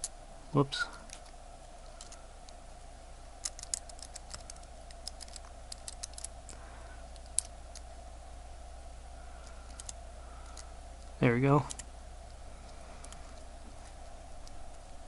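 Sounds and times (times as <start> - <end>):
steady hum: 0.0 - 15.0
small metal clicks and taps: 3.4 - 6.3.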